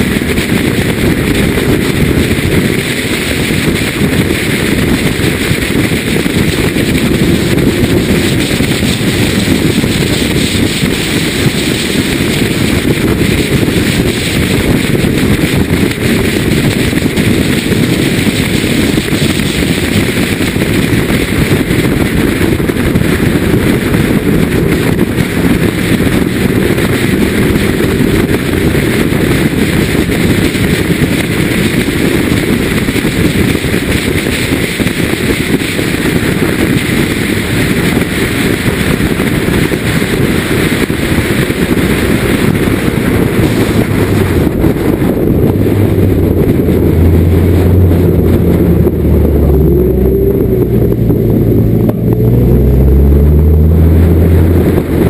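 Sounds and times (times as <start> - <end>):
wind buffeting microphone: 0.0 - 55.0
car engine revving hard: 34.2 - 55.0.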